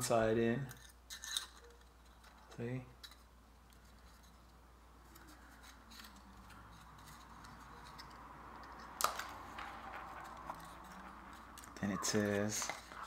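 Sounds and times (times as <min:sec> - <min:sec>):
wooden pieces clicking and rubbing: 0:05.1 - 0:13.0.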